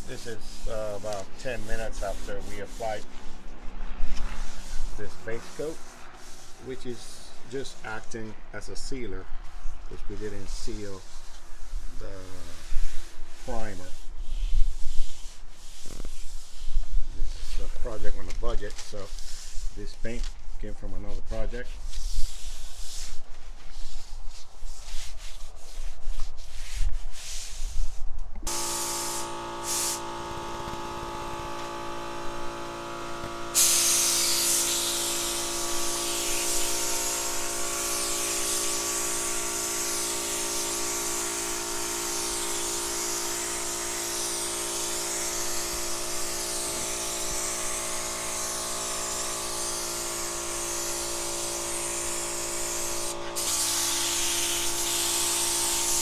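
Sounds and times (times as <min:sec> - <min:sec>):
cloth rubbing car panel: 0:00.0 - 0:08.0, 0:09.5 - 0:41.3
steady hum: 0:28.5 - 0:44.9
paint spray gun hissing: 0:28.5 - 0:56.0.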